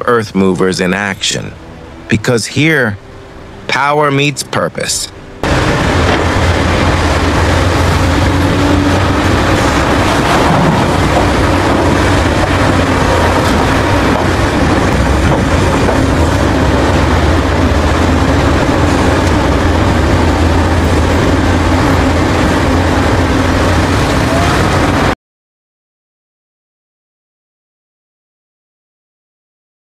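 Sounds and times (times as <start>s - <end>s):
excavator diesel engine under load: 5.4s - 25.2s.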